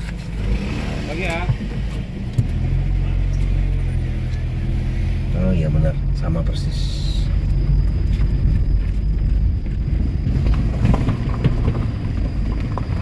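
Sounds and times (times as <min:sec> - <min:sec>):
car rolling over gravel: 0:05.0 - 0:13.0.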